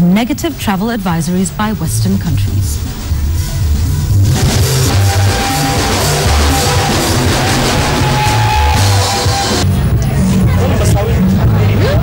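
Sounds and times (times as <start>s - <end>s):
upbeat band music: 2.0s - 9.6s.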